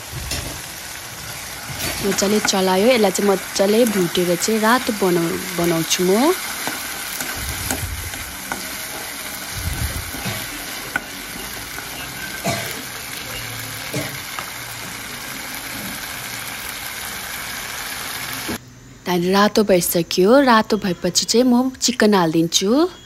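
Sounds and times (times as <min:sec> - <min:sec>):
onions sizzling in hot oil: 0:00.0 - 0:18.6
metal spatula scraping a pan: 0:00.3 - 0:03.3.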